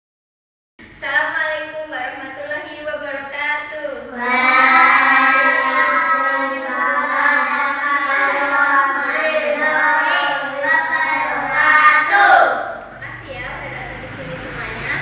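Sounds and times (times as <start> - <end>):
children singing in unison: 4.2 - 12.8.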